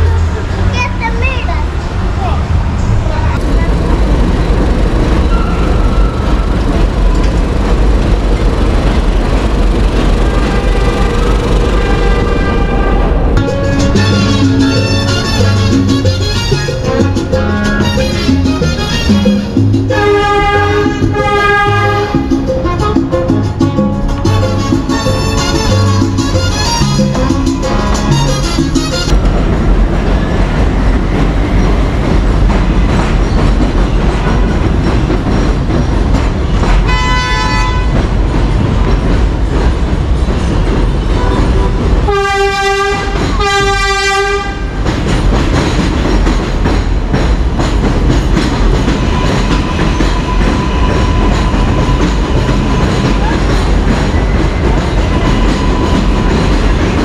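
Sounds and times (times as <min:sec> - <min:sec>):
elevated train rumble and rattle: 0:00.0 - 0:57.0
train horn blasts: 0:10.2 - 0:29.3, 0:36.8 - 0:38.1, 0:41.2 - 0:44.8.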